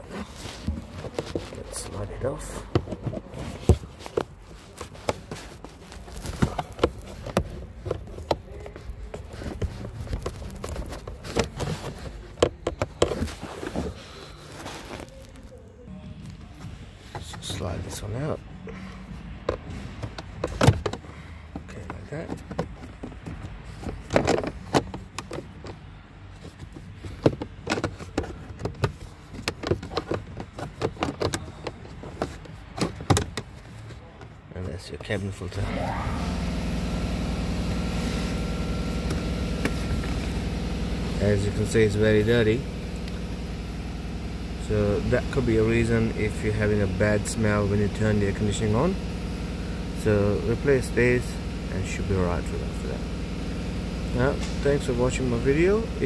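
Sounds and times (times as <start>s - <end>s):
plastic clicks and scraping: 0.0s - 15.5s, 19.4s - 34.4s
plastic clicks and knocks: 9.4s - 13.8s.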